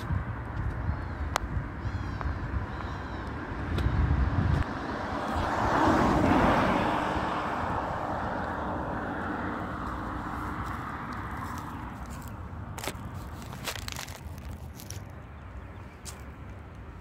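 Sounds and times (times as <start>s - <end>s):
vehicle passing by: 3.4s - 12.5s.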